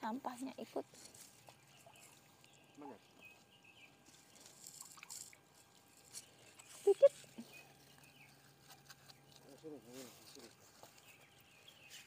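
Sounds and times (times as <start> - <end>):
wet mesh net rustling: 0.8 - 12.0
water dripping and trickling: 1.4 - 6.4.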